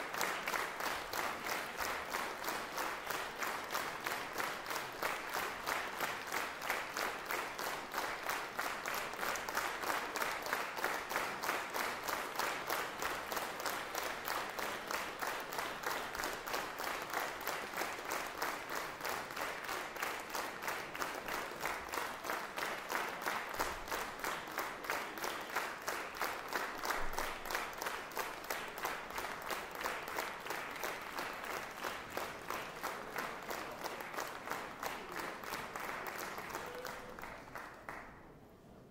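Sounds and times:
audience applauding rhythmically: 0.0 - 38.4.

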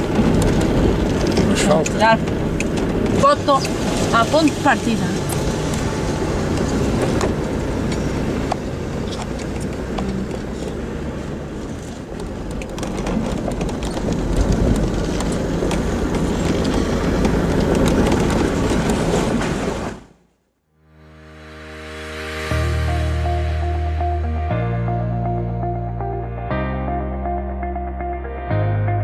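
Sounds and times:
body and suspension rattles: 0.0 - 20.1
engine and tyre rumble: 0.0 - 20.5.

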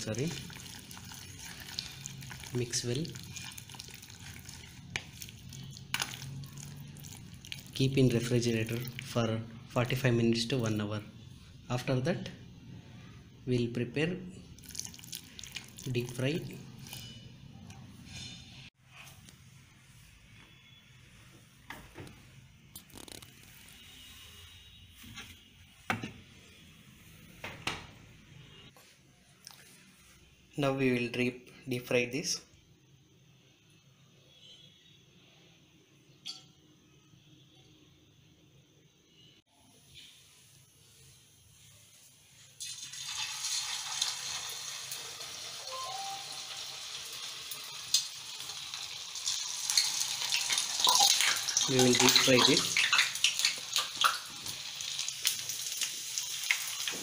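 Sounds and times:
chicken deep frying in oil: 0.0 - 9.1, 14.6 - 17.2, 42.6 - 57.0.

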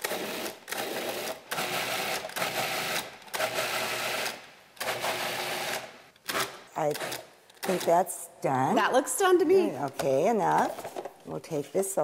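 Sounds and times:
food processor pulsing: 0.0 - 5.9.

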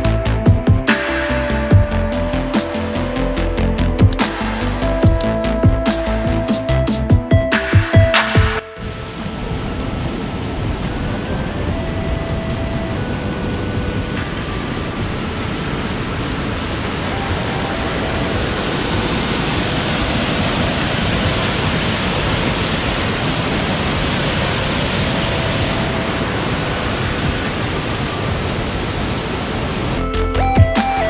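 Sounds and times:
electronic music with a beat: 0.0 - 31.0
waterfall rushing: 7.6 - 31.0.

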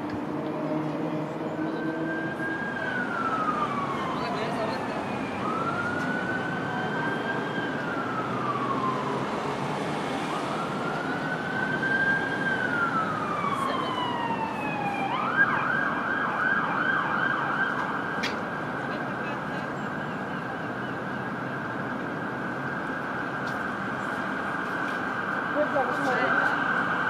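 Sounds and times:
city traffic hum: 0.0 - 27.0
emergency siren wail and yelp: 0.0 - 27.0.

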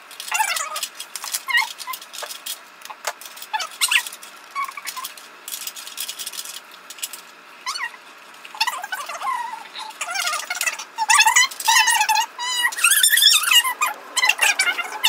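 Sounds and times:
paper rustling and crinkling: 0.0 - 7.4.

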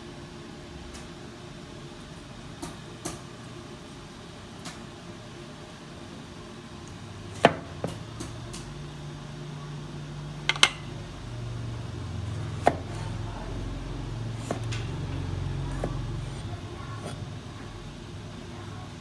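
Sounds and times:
knife cutting on wooden board: 14.4 - 14.7, 15.7 - 17.2.

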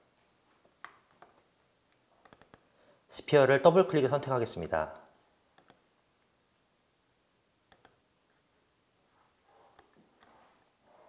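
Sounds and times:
computer mouse clicks: 0.8 - 2.7, 5.0 - 5.8, 7.7 - 8.0, 9.8 - 10.4.

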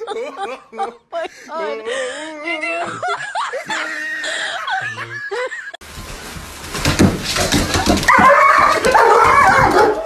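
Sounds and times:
rustling: 5.8 - 10.0.

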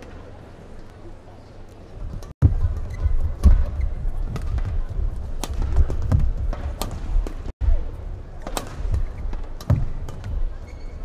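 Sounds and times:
murmur of arena crowd: 0.0 - 11.0
racket striking shuttlecock: 5.4 - 7.5.

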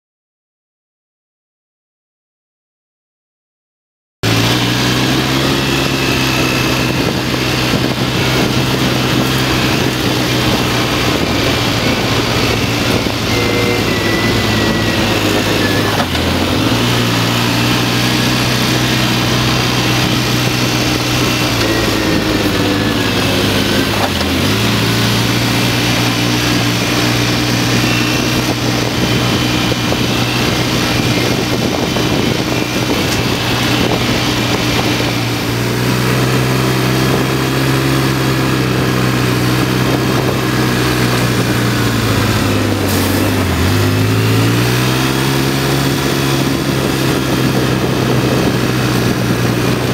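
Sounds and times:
off-road vehicle engine running: 4.2 - 49.9.

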